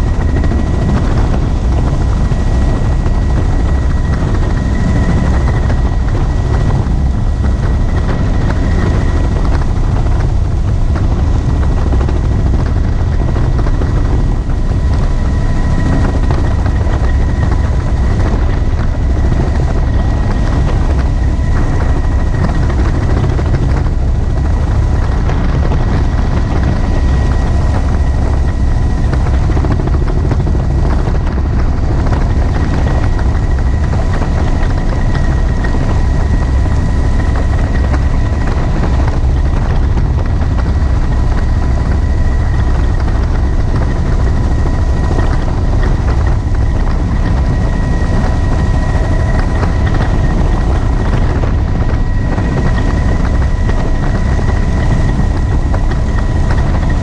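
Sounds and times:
helicopter rotor and engine din: 0.0 - 57.0
thin steady whine: 0.0 - 57.0
wind rushing on microphone: 0.0 - 57.0.

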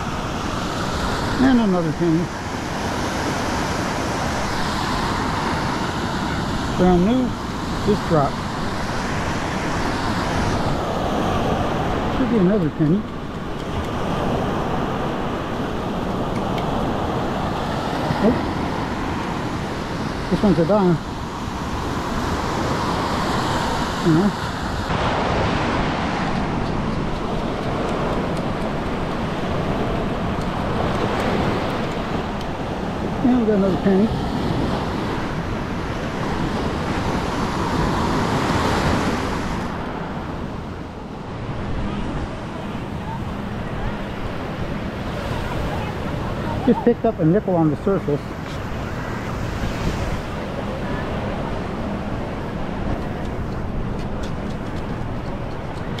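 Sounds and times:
beach surf: 0.0 - 56.0
wind buffeting microphone: 0.0 - 56.0.

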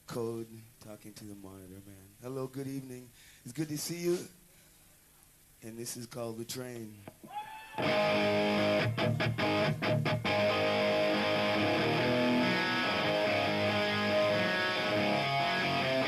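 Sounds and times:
electric guitar chord riff: 7.8 - 16.0.

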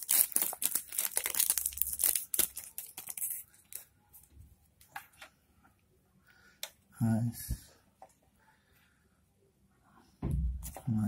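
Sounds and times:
plastic shrink-wrap crinkling: 0.0 - 3.9.

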